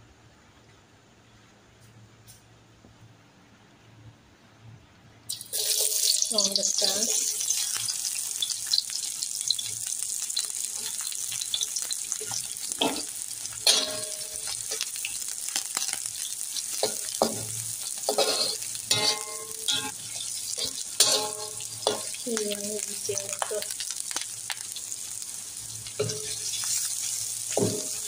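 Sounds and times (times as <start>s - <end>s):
onions sizzling in oil: 5.3s - 28.0s
spatula scraping metal pan: 18.1s - 22.1s.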